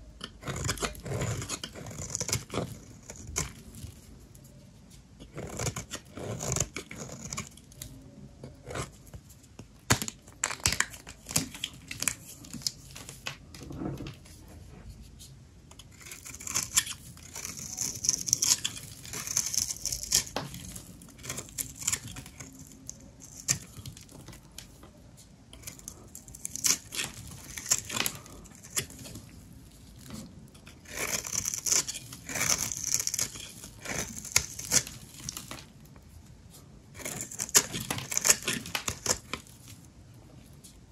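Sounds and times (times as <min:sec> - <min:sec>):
soap crackling and scraping: 0:00.2 - 0:40.9.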